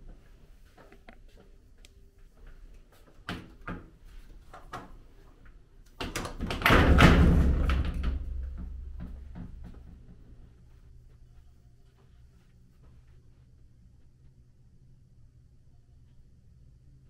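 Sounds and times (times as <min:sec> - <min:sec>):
closet door sliding rattle and thump: 0:06.0 - 0:10.0.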